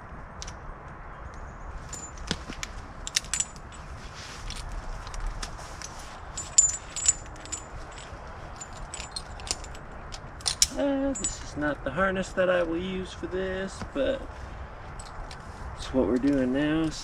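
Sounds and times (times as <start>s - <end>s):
carabiners clinking and jangling: 1.8s - 11.7s, 13.7s - 17.0s.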